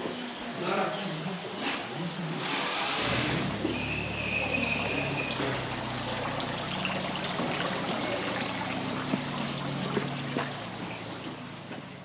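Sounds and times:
running water trickling: 3.5 - 12.0.

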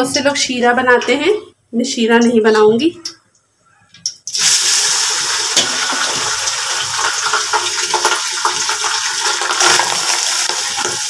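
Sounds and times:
rice sizzling in hot ghee: 4.3 - 11.0.

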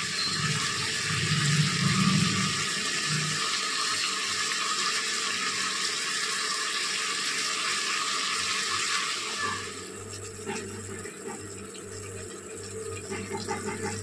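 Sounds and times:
food sizzling in a pressure cooker: 2.7 - 11.0.

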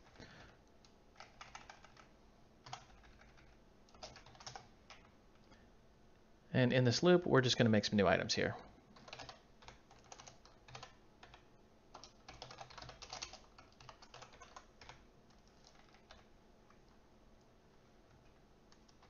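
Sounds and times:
typing on computer keyboard: 0.0 - 5.1, 9.0 - 17.0, 18.1 - 19.0.

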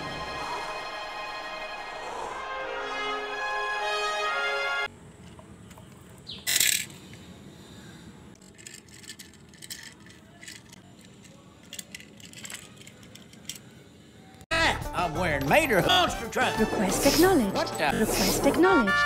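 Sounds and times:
toy cars rattling: 5.2 - 7.2, 8.4 - 14.0
toy car clicks and taps: 8.4 - 13.7.

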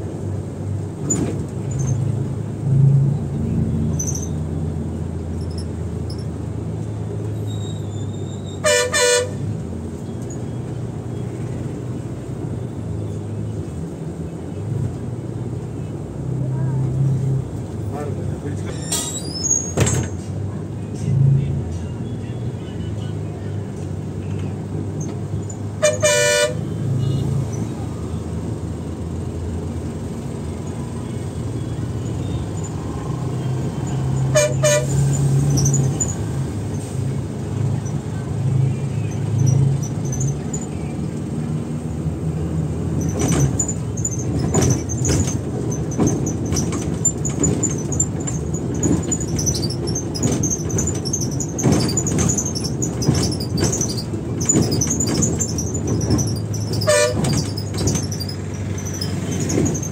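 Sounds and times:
bus engine hum and road noise: 0.0 - 59.9
clicks squeaks and rattles: 3.9 - 4.5, 7.2 - 8.6, 18.6 - 20.3, 33.8 - 36.8, 38.9 - 41.3, 42.8 - 59.9
bus horn toots: 8.3 - 9.5, 25.7 - 27.4, 33.3 - 36.0, 56.7 - 57.5.

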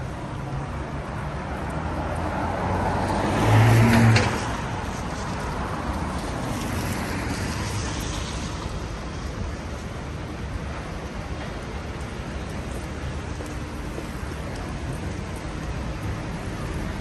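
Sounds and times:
tyres hissing on wet road: 1.8 - 10.2.

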